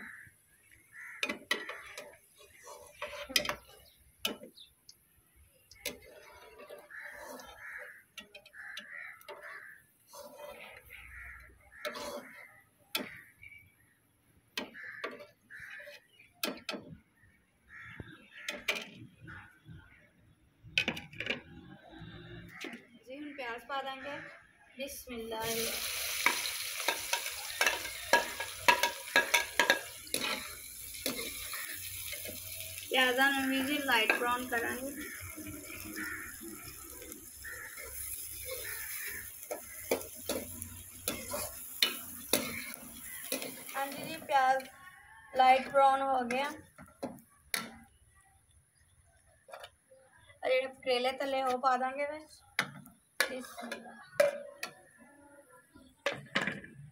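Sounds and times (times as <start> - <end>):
metal spoon scraping a wok: 1.3 - 3.8, 5.8 - 11.2, 11.8 - 13.2, 25.4 - 36.9, 37.6 - 44.7
onions frying: 25.4 - 44.8.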